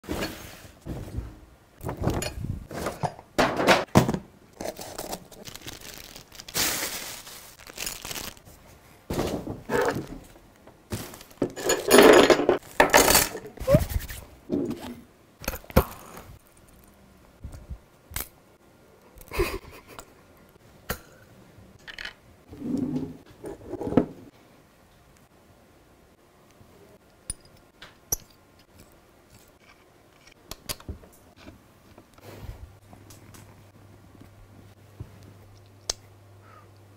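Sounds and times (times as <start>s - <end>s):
plastic packaging crinkling and tearing: 4.6s - 8.5s.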